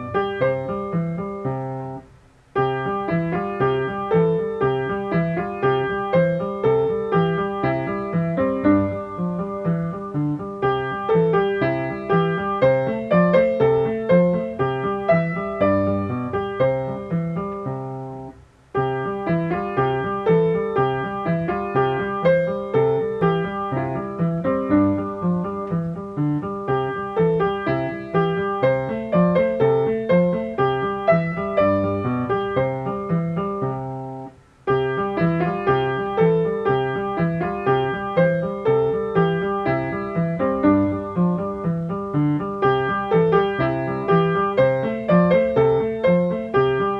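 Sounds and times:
piano playing: 0.0 - 46.9.

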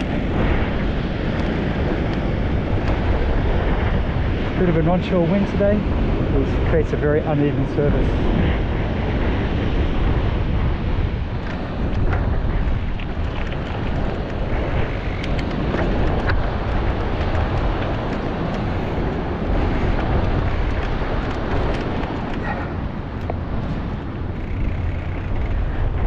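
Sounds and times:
wind buffeting microphone: 0.0 - 26.0
bike clicks and knocks: 1.2 - 3.8, 11.3 - 26.0.

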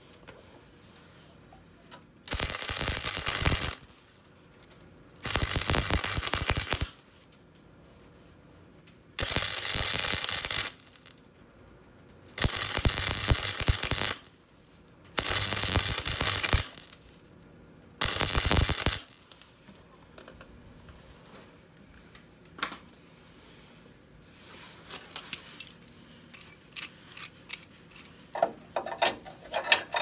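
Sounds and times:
welding arc crackling: 2.3 - 4.1, 5.2 - 7.1, 9.2 - 11.2, 12.4 - 14.4, 15.2 - 17.3, 18.0 - 19.5.

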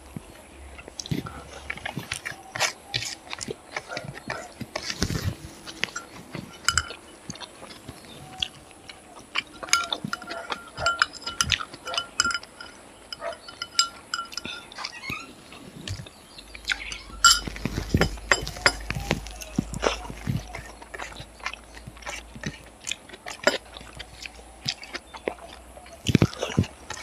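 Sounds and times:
close-up chewing: 0.0 - 27.0
metal spoon clinking on dishes: 5.7 - 7.5, 9.4 - 15.2, 16.6 - 21.1.

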